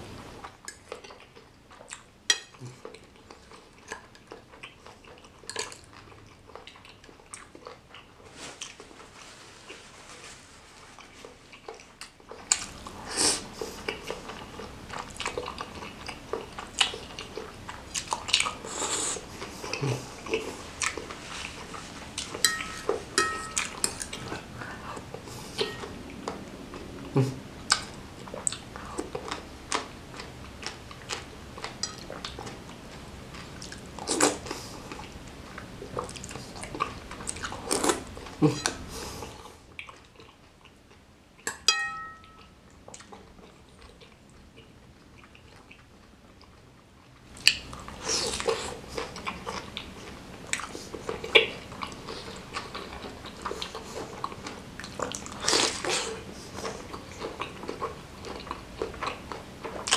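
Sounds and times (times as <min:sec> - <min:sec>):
chewing and slurping noodles: 0:11.0 - 0:41.0, 0:42.4 - 0:59.9
fork and spoon clinking on bowl: 0:22.4 - 0:24.0, 0:25.6 - 0:25.9, 0:41.5 - 0:42.5.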